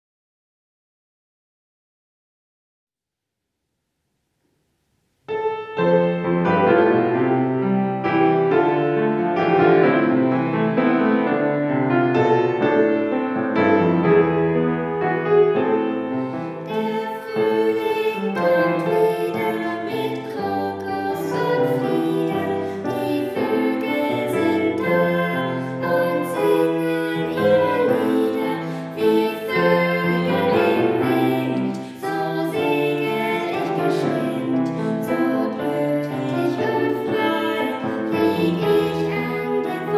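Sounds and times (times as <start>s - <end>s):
piano accompaniment: 5.2s - 39.9s
girl and woman singing: 16.6s - 39.9s.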